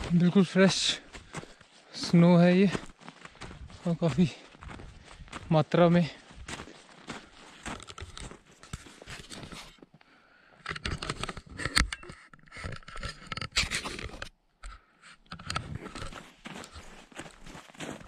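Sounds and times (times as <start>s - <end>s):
footsteps crunching in snow: 0.0s - 9.8s, 15.6s - 18.0s.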